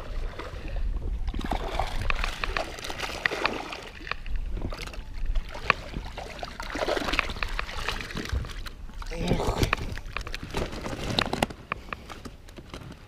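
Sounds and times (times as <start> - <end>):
net clicks and rustles: 9.5 - 13.0.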